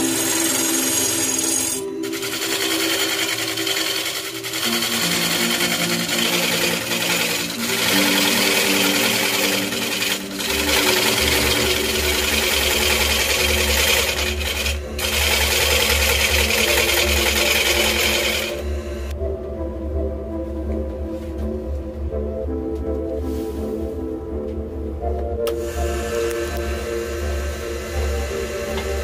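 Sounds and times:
lathe tool rasping wood: 0.0s - 19.1s, 25.6s - 29.0s.

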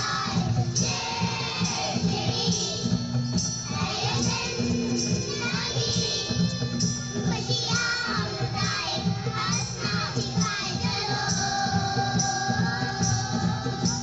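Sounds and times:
backing music with steady beat: 0.0s - 14.0s
children singing together: 0.0s - 14.0s.

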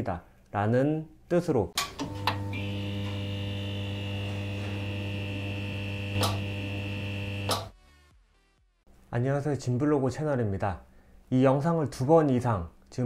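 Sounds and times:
neon sign electrical hum: 1.8s - 7.7s
thin high whine: 2.0s - 7.7s.

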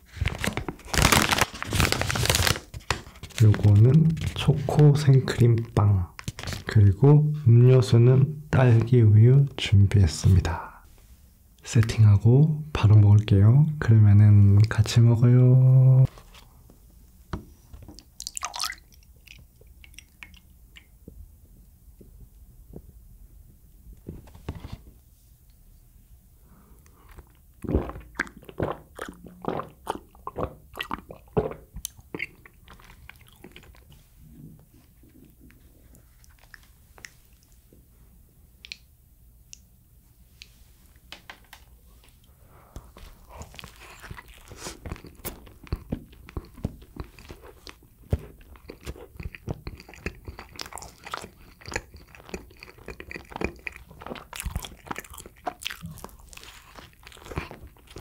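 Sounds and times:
person biting and chewing pastry: 43.0s - 58.0s.

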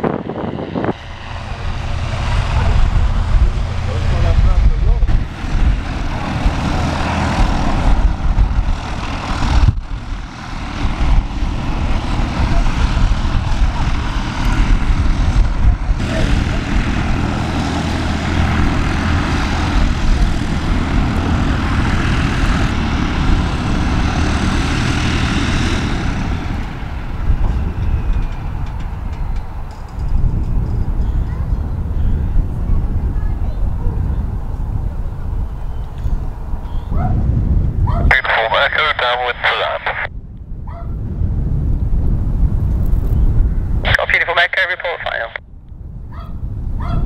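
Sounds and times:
aircraft engines rumbling: 0.0s - 47.0s.

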